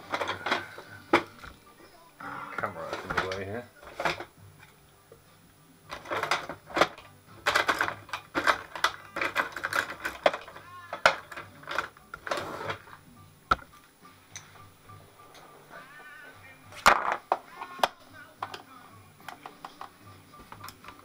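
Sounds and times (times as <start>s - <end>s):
metal and plastic parts clattering: 0.0s - 1.6s, 2.6s - 4.3s, 5.9s - 13.7s, 16.8s - 18.6s.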